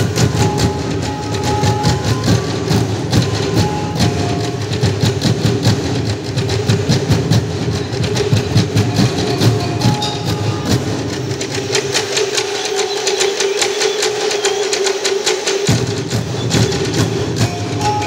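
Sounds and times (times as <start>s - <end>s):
deep drum beats: 0.0s - 12.4s, 15.7s - 18.0s
sharp clicking percussion: 0.0s - 18.0s.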